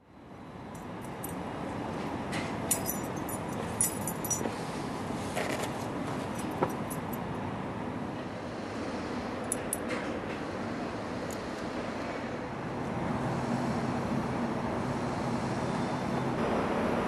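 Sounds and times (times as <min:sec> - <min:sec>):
city traffic hum: 0:00.0 - 0:17.0
keys jingling: 0:02.7 - 0:04.5.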